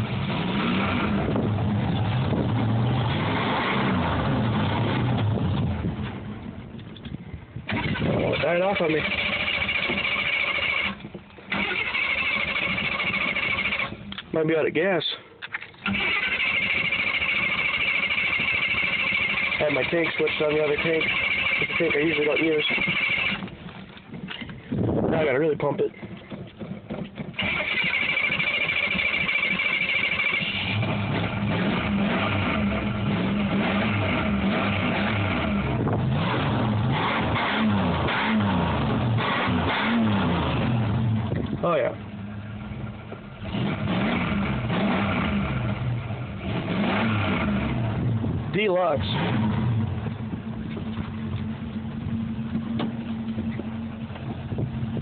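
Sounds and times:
pickup engine revving: 0:00.0 - 0:06.5, 0:27.4 - 0:55.0
starter cranking engine: 0:07.6 - 0:14.3, 0:15.4 - 0:41.9
pickup engine idling: 0:40.8 - 0:43.5, 0:49.5 - 0:55.0.

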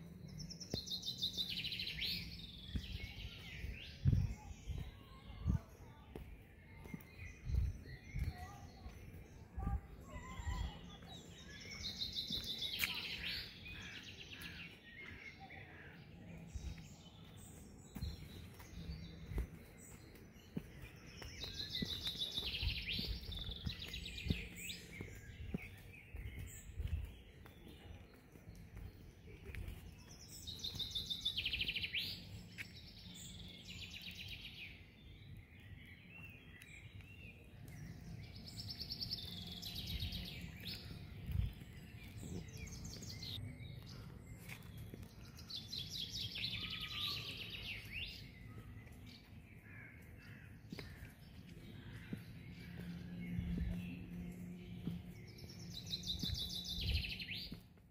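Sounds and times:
soft footsteps on paving: 0:00.0 - 0:57.9
songbird trill: 0:00.0 - 0:57.9.

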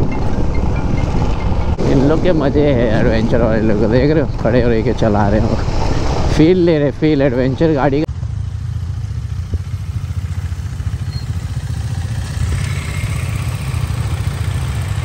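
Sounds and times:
motorcycle engine idling: 0:08.1 - 0:15.0.

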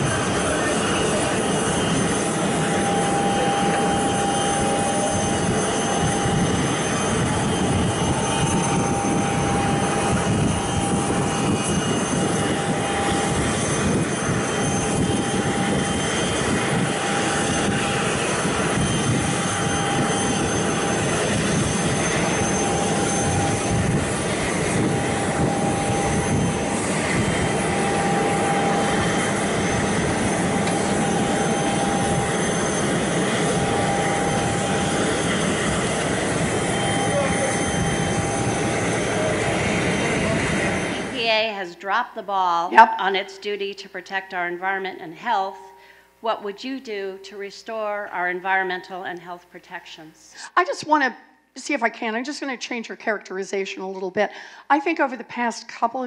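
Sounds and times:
jet engine idling: 0:00.0 - 0:41.7.

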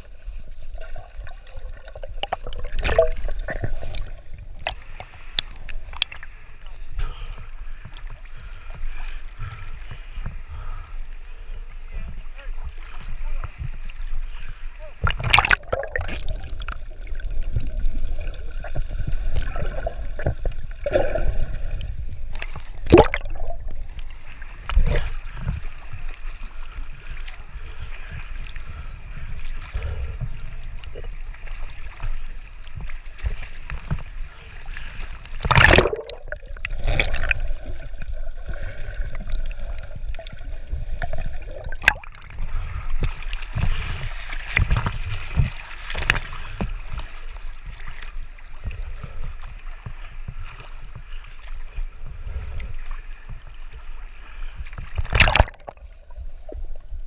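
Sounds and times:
water sloshing and gurgling: 0:00.0 - 0:57.0
sharp water splashes: 0:01.2 - 0:06.3, 0:15.0 - 0:18.3, 0:22.3 - 0:25.3, 0:35.4 - 0:38.2, 0:41.0 - 0:46.5, 0:55.0 - 0:55.9.

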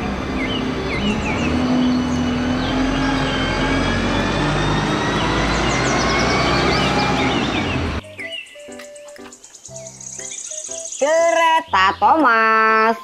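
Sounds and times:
bus engine rumbling: 0:00.0 - 0:08.0
faint engine whine: 0:00.0 - 0:08.0
street traffic: 0:00.0 - 0:10.6.

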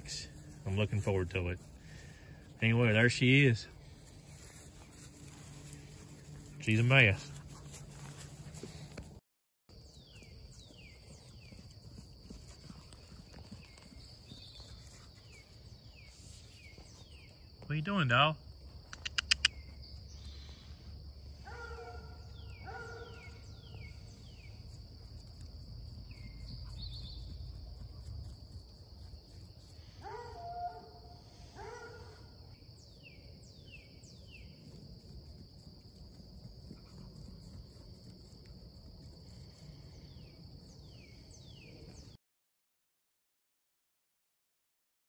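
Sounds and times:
insects droning: 0:09.8 - 0:42.1
sharp clicks: 0:18.8 - 0:19.6.

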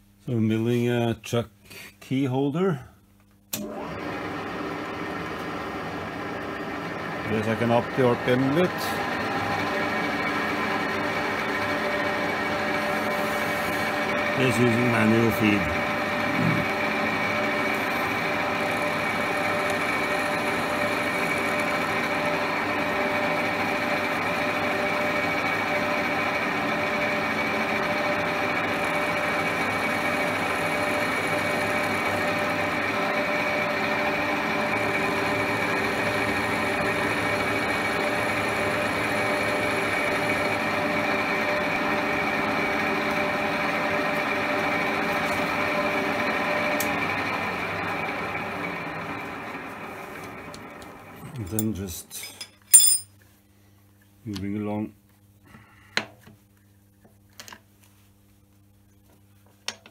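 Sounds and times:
milling machine running: 0:03.6 - 0:26.6.

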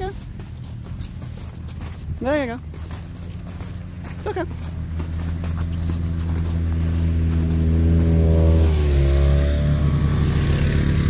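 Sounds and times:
atv engine driving past: 0:02.6 - 0:11.0.

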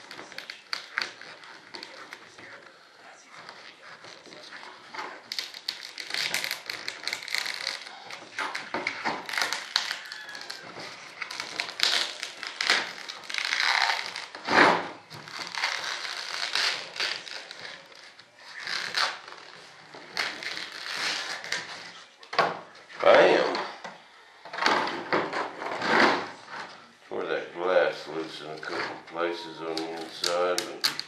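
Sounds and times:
plastic film crinkling and tearing: 0:00.0 - 0:22.2, 0:29.5 - 0:31.0
sharp plastic snaps: 0:29.7 - 0:31.0.

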